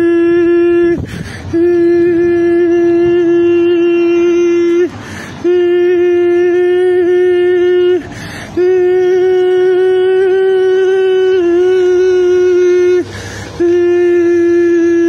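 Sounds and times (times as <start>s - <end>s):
man holding a high note: 0.0s - 15.0s
quick breath: 1.0s - 1.6s, 4.9s - 5.4s, 8.0s - 8.6s, 13.0s - 13.6s.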